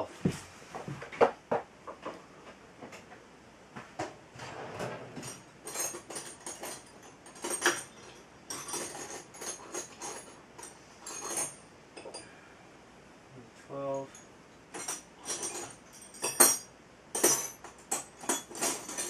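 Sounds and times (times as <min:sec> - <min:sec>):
metal hand tools clinking: 0:05.2 - 0:12.2, 0:14.1 - 0:19.0.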